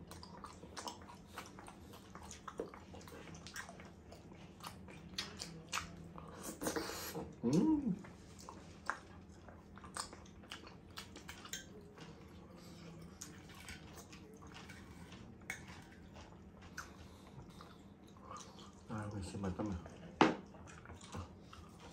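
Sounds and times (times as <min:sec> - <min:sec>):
person chewing food: 0:00.0 - 0:21.9
person humming: 0:07.4 - 0:08.0.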